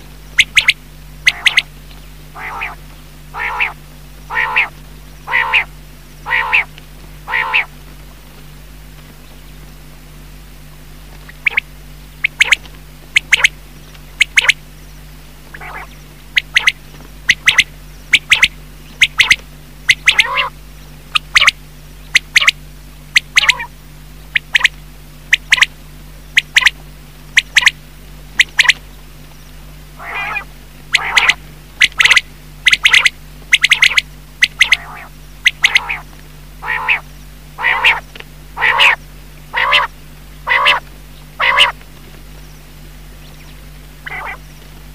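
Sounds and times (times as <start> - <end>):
faint low hum: 0.0 - 44.9
quail calling: 0.4 - 1.7, 2.3 - 7.8, 11.2 - 14.6, 15.5 - 25.7, 26.4 - 27.8, 28.4 - 28.8, 30.0 - 41.8, 43.2 - 44.6.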